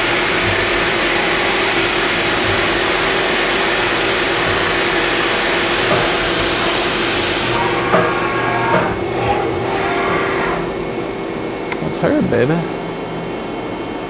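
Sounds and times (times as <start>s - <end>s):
coolant spray hissing: 0.0s - 7.8s
machine clunks: 0.0s - 10.9s
milling machine hum: 0.0s - 14.0s.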